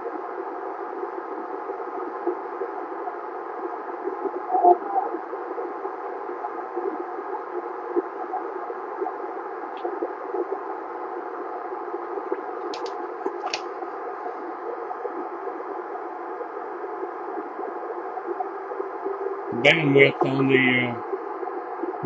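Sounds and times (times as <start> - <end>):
radio static hiss: 0.0 - 22.0
sharp clicks: 12.6 - 13.7.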